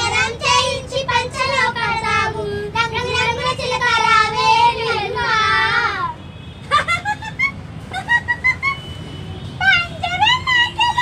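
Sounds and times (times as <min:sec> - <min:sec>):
children singing together: 0:00.0 - 0:06.1.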